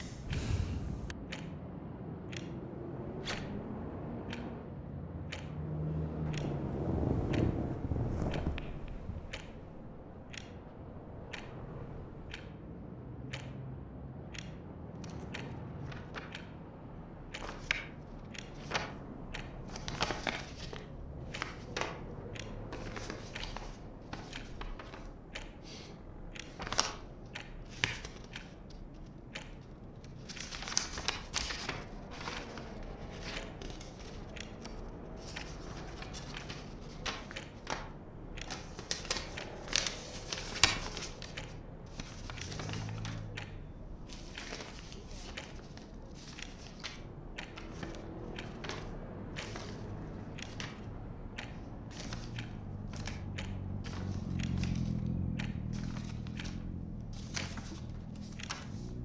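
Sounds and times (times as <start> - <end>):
low background rumble: 0.0 - 2.0, 6.3 - 25.4
light clicks and knocks: 13.2 - 59.0.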